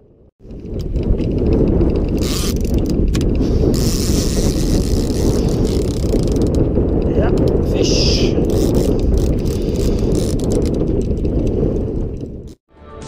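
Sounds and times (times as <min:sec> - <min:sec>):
wind buffeting microphone: 0:00.0 - 0:12.6
fishing reel ratchet clicking: 0:02.2 - 0:06.6, 0:08.5 - 0:10.8.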